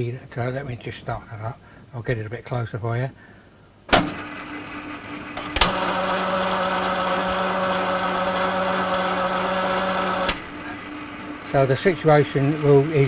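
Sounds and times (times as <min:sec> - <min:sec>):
mechanical drive whine: 0:03.9 - 0:13.0
lathe humming: 0:04.0 - 0:13.0.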